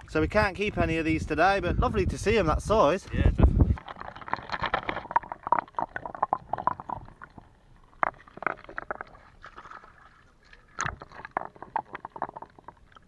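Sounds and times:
water sloshing and splashing: 0:03.6 - 0:13.0.

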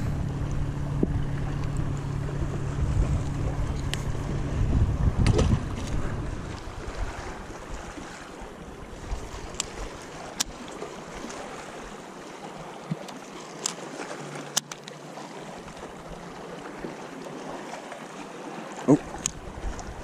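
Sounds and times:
small waves lapping against a hull: 0:00.0 - 0:20.0.

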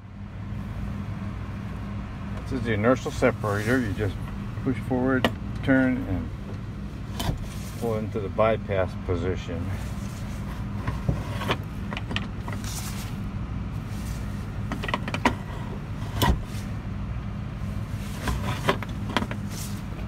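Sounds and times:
steady low hum: 0:00.0 - 0:20.0
handle clicks and clunks: 0:05.1 - 0:08.2, 0:10.4 - 0:12.7, 0:14.6 - 0:16.6, 0:18.2 - 0:20.0.

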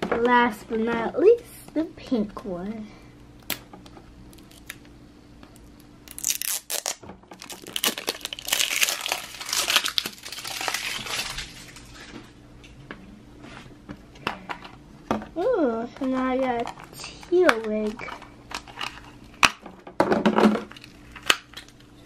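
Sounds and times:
plastic wrapping tearing: 0:04.3 - 0:04.8, 0:06.0 - 0:12.1
plastic crinkling: 0:05.6 - 0:12.4, 0:20.6 - 0:22.0.

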